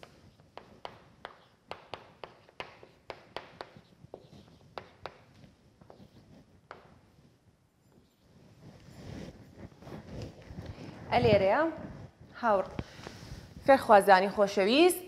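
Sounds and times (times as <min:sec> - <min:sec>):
marker tapping on whiteboard: 0:00.5 - 0:06.1, 0:06.7 - 0:07.0.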